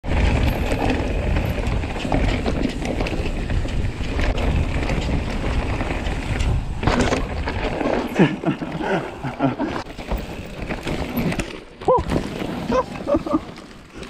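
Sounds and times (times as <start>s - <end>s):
wind buffeting microphone: 0.0s - 9.0s
bike clicking and rattling: 0.0s - 14.0s
tyres rumbling over dirt: 0.0s - 14.0s.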